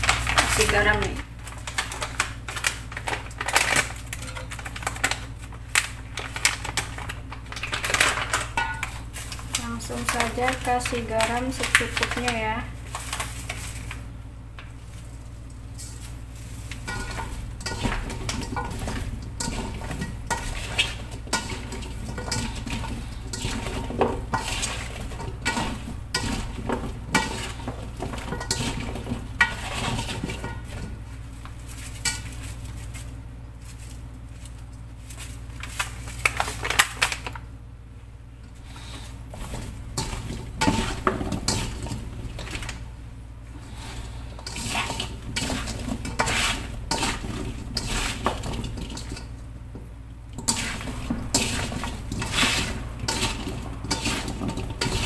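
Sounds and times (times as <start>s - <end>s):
wet vegetable slices sliding on metal: 15.8s - 30.9s, 43.6s - 49.0s, 50.4s - 55.0s.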